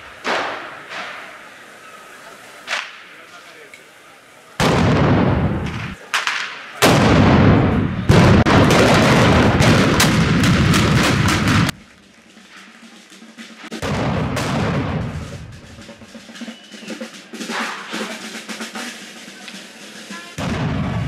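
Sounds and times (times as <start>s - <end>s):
black-powder gun shots: 0.2s - 1.2s, 4.6s - 11.8s, 13.8s - 15.5s.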